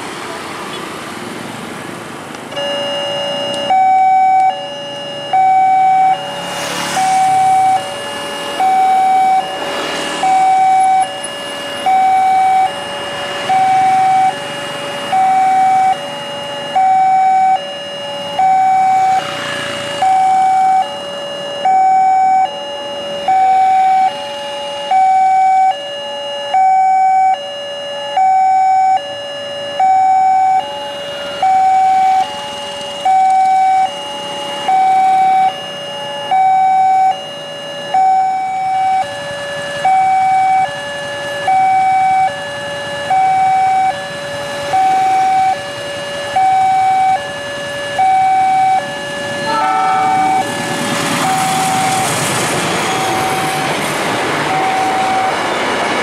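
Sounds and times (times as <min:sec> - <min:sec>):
motorbikes passing: 0:00.0 - 0:21.2, 0:38.4 - 0:56.0
level crossing two-tone alarm: 0:02.5 - 0:56.0.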